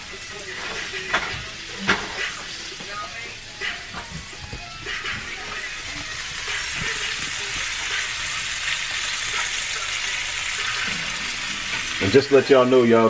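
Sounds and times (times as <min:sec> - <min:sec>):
chicken sizzling in oil: 0:00.0 - 0:13.0.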